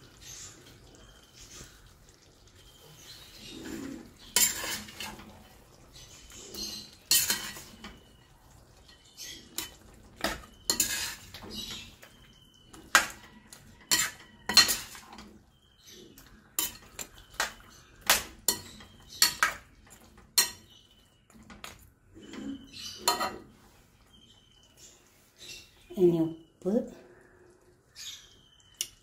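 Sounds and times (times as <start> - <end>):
metal ladle scraping a pan: 3.3 - 8.2, 8.8 - 12.1, 12.9 - 20.8, 21.6 - 23.9.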